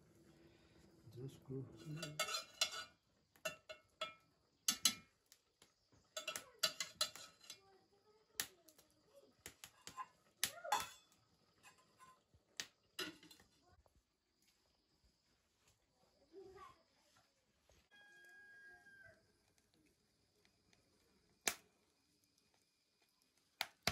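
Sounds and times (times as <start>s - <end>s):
dishes and utensils clinking: 1.8s - 5.1s, 6.1s - 7.6s, 10.7s - 12.2s, 13.0s - 13.4s.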